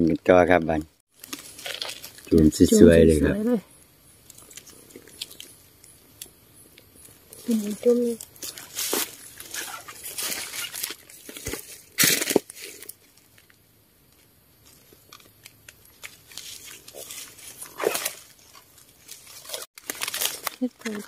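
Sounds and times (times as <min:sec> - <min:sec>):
leaf litter rustling and crackling: 0:01.1 - 0:03.2, 0:07.3 - 0:21.0.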